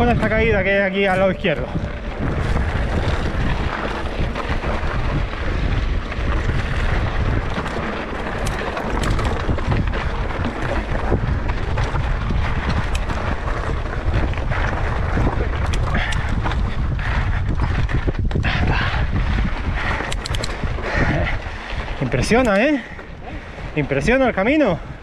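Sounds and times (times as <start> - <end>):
rumble of bike tyres: 0.0 - 25.0
stones and bike rattling: 0.0 - 25.0
wind buffeting microphone: 0.0 - 25.0.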